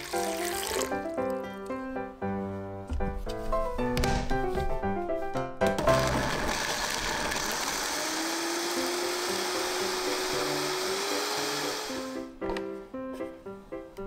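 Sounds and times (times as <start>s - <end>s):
piano music: 0.0s - 7.0s, 8.2s - 14.0s
blender motor whining: 5.9s - 12.3s.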